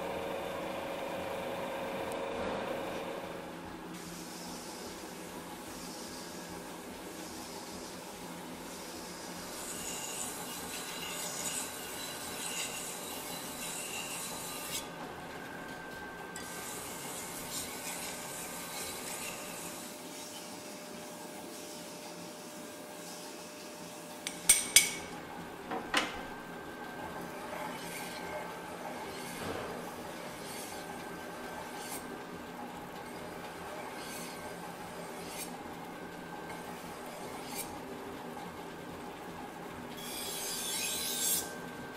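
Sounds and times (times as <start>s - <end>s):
knife grinding on wet stone wheel: 8.7s - 15.0s, 16.4s - 24.5s, 27.1s - 37.9s, 40.0s - 41.6s.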